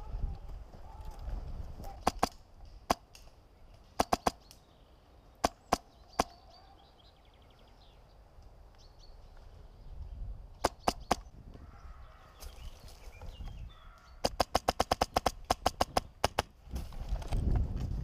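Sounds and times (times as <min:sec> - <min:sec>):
airsoft rifle single shots: 0:01.9 - 0:03.2, 0:04.0 - 0:04.5.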